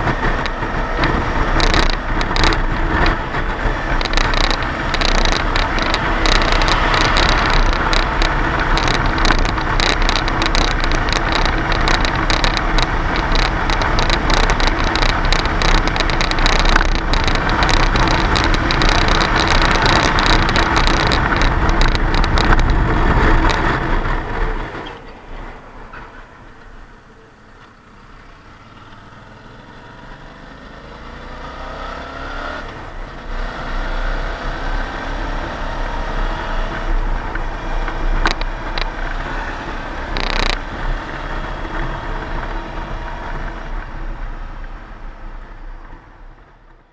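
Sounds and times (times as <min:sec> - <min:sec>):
motorcycle engine running: 0:00.0 - 0:25.8, 0:26.7 - 0:46.9
wind rushing over microphone: 0:00.0 - 0:27.0.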